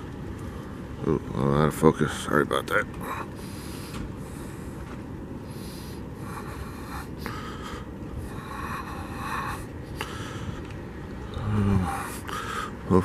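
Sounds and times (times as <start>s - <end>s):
low background rumble: 0.0s - 13.0s
breathy breaths: 3.0s - 12.9s.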